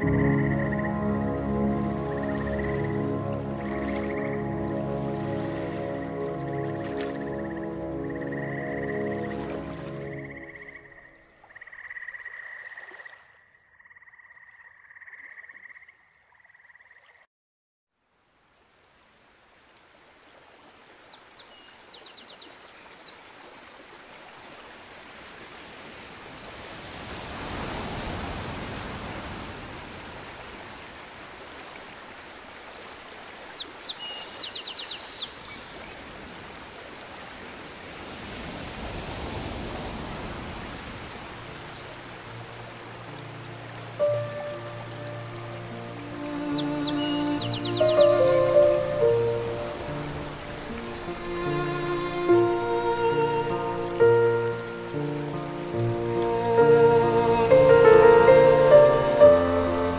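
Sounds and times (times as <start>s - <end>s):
frogs calling: 0.0s - 1.2s, 6.0s - 9.3s, 10.0s - 17.2s
rushing stream water: 0.0s - 13.4s, 18.0s - 59.9s.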